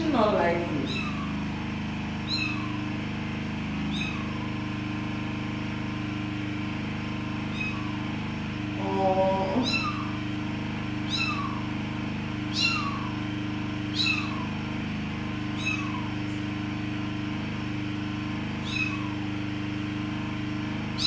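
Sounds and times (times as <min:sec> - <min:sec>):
steady low hum: 0:00.0 - 0:21.0
kitten mewing: 0:00.6 - 0:01.5, 0:02.2 - 0:02.9, 0:03.9 - 0:04.7, 0:07.5 - 0:08.2, 0:08.8 - 0:10.2, 0:11.0 - 0:11.7, 0:12.5 - 0:13.2, 0:13.9 - 0:14.6, 0:15.5 - 0:16.5, 0:18.6 - 0:19.2.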